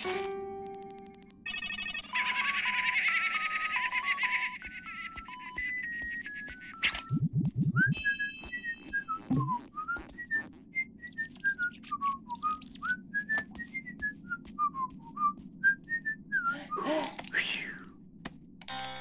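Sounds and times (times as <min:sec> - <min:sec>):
low hum: 0:06.9 - 0:09.6
person whistling a tune: 0:07.1 - 0:16.8.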